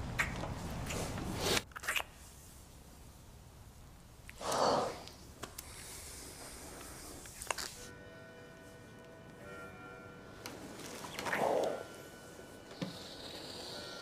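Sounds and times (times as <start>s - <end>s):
kissing lip smacks: 0.2s - 1.1s, 1.7s - 2.2s.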